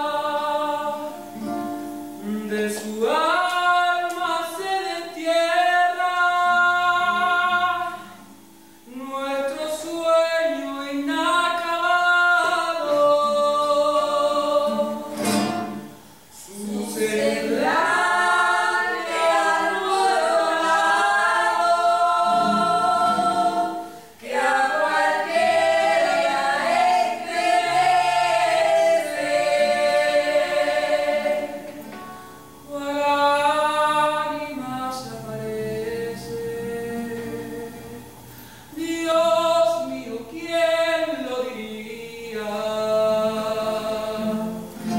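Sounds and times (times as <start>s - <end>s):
choir singing in harmony: 0.0s - 1.5s, 12.2s - 38.2s.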